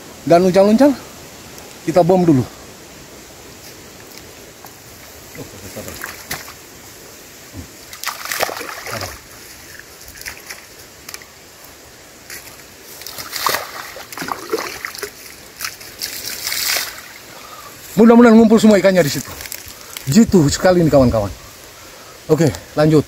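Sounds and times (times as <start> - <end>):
bait balls splashing into water: 5.9 - 6.6, 7.9 - 9.3, 13.0 - 17.2.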